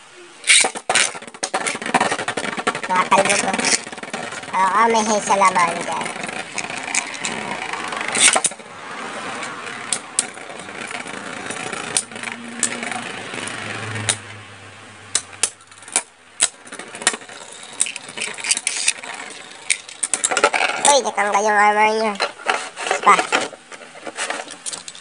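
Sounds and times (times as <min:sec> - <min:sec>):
spinning tops clicking together: 0:00.4 - 0:08.6, 0:15.1 - 0:21.1
spinning tops whirring and scraping: 0:00.4 - 0:25.0.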